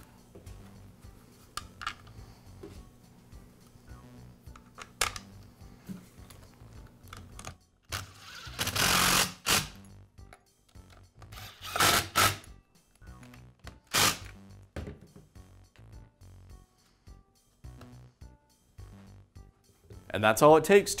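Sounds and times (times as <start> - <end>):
cordless driver spinning: 7.9 - 9.6.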